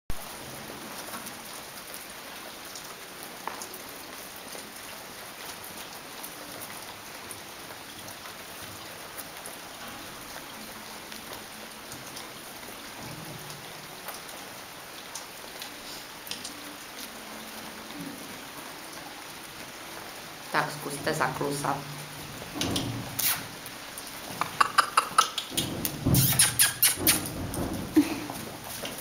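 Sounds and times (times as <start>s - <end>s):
steady hiss: 21.3s - 29.0s.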